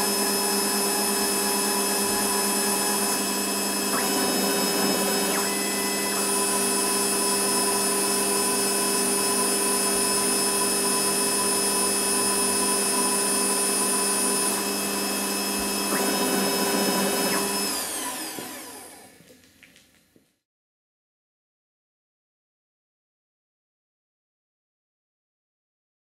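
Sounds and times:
lathe spindle spinning down: 0:00.0 - 0:19.2
mini lathe whining: 0:00.0 - 0:19.2.

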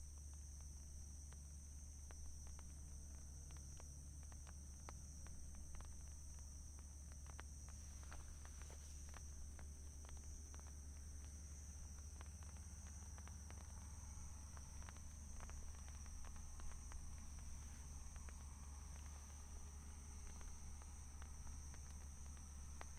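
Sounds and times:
faint clicks: 0:00.0 - 0:22.9
high insect chorus: 0:00.0 - 0:22.9
low rumble: 0:04.2 - 0:22.9.

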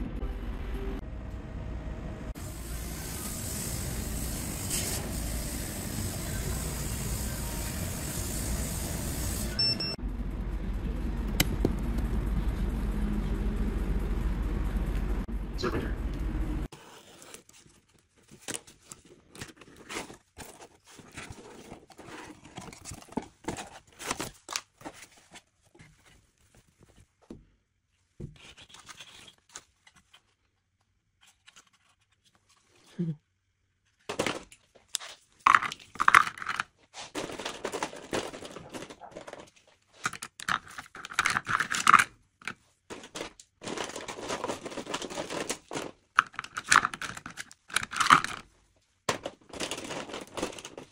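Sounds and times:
cardboard rustling and tearing: 0:16.8 - 0:26.7, 0:42.9 - 0:46.2, 0:49.2 - 0:50.9
pencils clattering: 0:34.0 - 0:48.5, 0:49.1 - 0:50.9.

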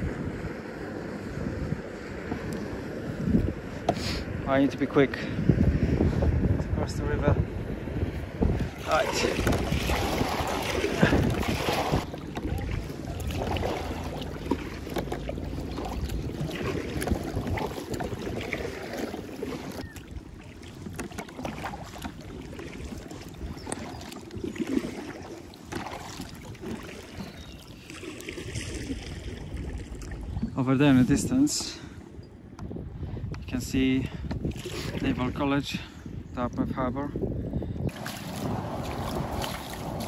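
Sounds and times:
wind buffeting microphone: 0:00.0 - 0:40.0
paddle strokes splashing water: 0:08.1 - 0:31.9, 0:34.3 - 0:35.5, 0:37.8 - 0:40.0.

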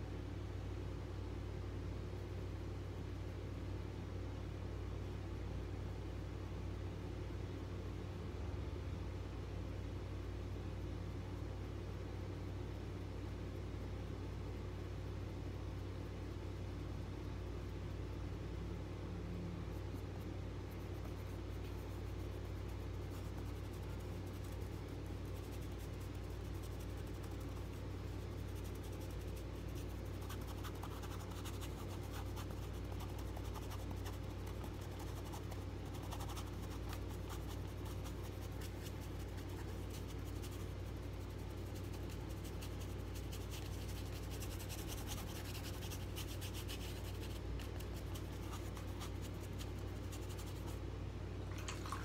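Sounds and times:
steady low hum: 0:00.0 - 0:52.0
paintbrush scrubbing on canvas: 0:20.7 - 0:50.8.

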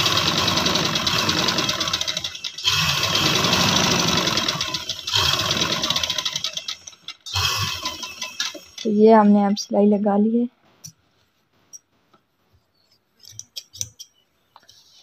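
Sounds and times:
sewing machine stitching: 0:00.0 - 0:09.0.

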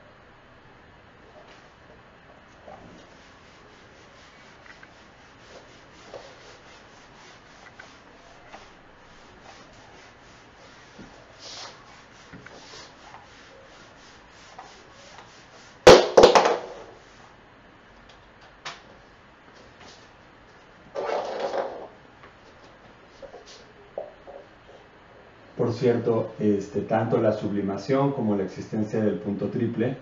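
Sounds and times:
whiteboard eraser rubbing: 0:02.6 - 0:17.3.

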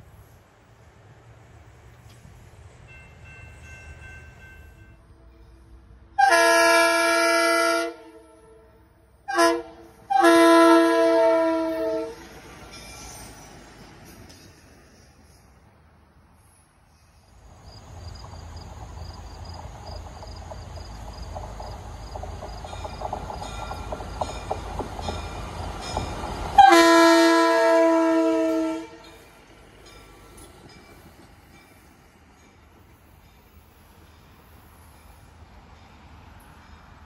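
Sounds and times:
diesel railcar rumbling on track: 0:00.0 - 0:37.0
train horn blast: 0:05.0 - 0:12.4, 0:26.6 - 0:29.2.

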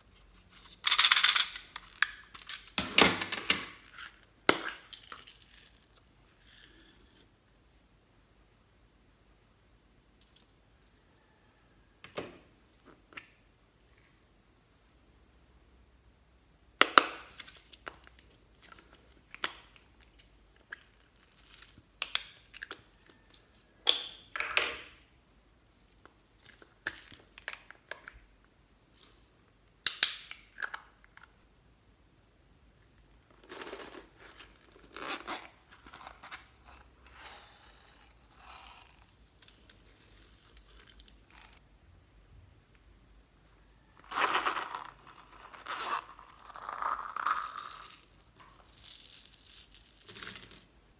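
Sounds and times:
beads rattling into dish: 0:37.5 - 0:41.6, 0:44.1 - 0:50.7.

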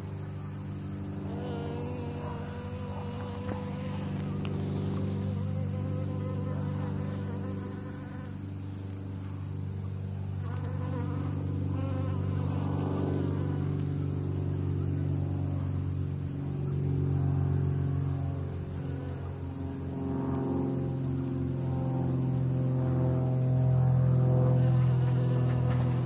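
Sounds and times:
honeybees buzzing: 0:00.0 - 0:08.4, 0:10.4 - 0:13.9, 0:24.4 - 0:26.0.

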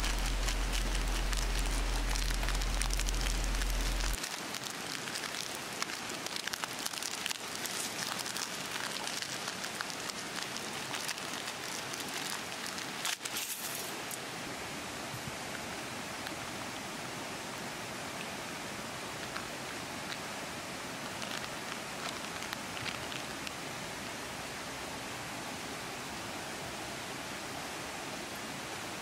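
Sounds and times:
low hum: 0:00.0 - 0:04.2
dry noodles crushed in packet: 0:00.0 - 0:13.8.

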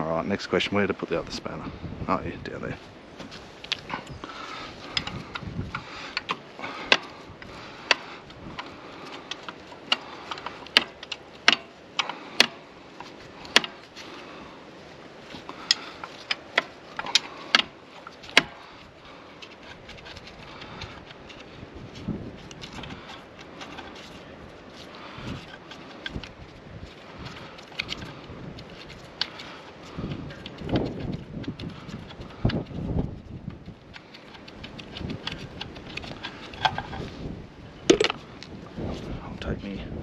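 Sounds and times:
wind rushing: 0:04.1 - 0:06.1.

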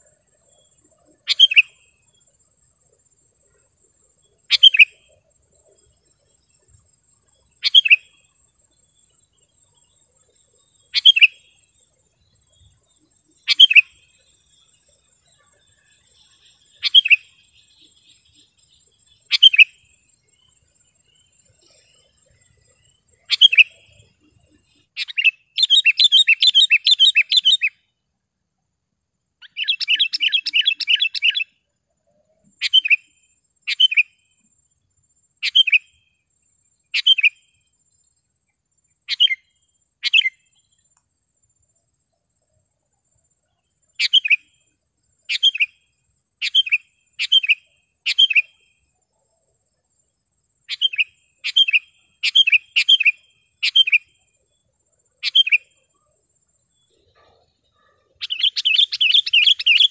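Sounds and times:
bird calling: 0:01.0 - 0:01.9, 0:04.5 - 0:05.2, 0:07.6 - 0:08.2, 0:10.9 - 0:11.6, 0:13.4 - 0:19.9, 0:21.4 - 0:27.8, 0:29.4 - 0:31.5, 0:32.6 - 0:33.1, 0:33.7 - 0:34.2, 0:35.4 - 0:35.9, 0:37.0 - 0:37.5, 0:39.1 - 0:39.4, 0:40.0 - 0:40.5, 0:44.0 - 0:44.5, 0:45.3 - 0:45.8, 0:46.4 - 0:48.6, 0:50.7 - 0:54.2, 0:55.1 - 0:55.9, 0:56.8 - 0:59.9.

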